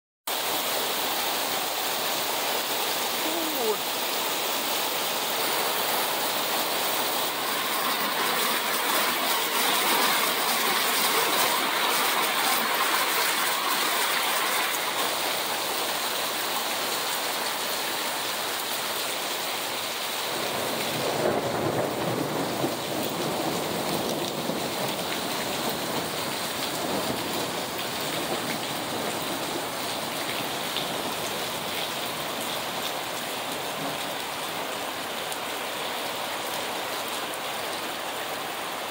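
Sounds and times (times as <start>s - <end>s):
heavy rain pouring: 0.3s - 38.9s
thunder rumbling: 20.4s - 29.8s.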